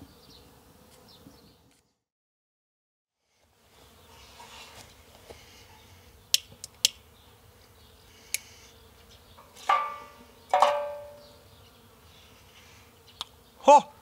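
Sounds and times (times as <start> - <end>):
metal cookware clanging: 9.6 - 11.3.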